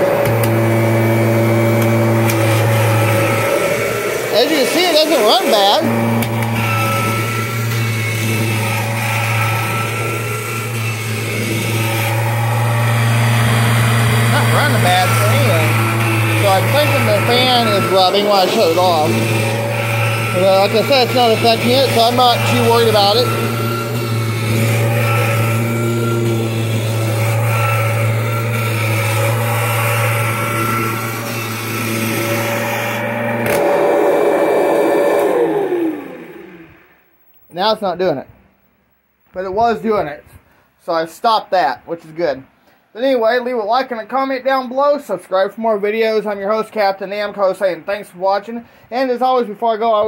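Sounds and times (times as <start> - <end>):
vacuum cleaner running: 0.0 - 37.1.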